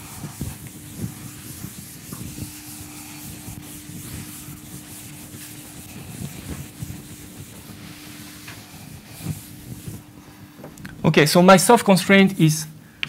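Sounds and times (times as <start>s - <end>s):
eraser rubbing on chalkboard: 0.0s - 10.3s.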